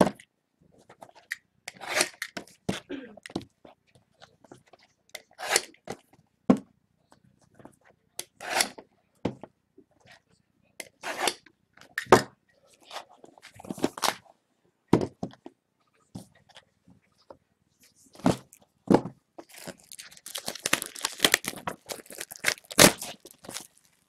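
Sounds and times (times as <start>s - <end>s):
plastic wrap crinkling: 19.4s - 24.0s.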